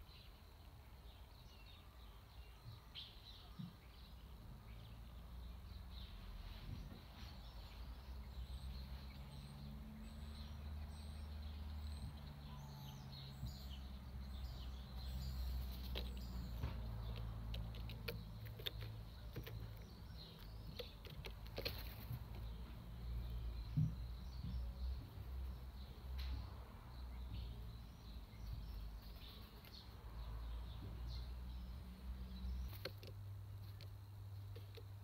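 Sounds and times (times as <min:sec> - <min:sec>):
distant traffic hum: 0:00.0 - 0:35.0
small birds chirping: 0:00.0 - 0:35.0
bird clicks and calls: 0:10.3 - 0:26.6, 0:27.3 - 0:35.0.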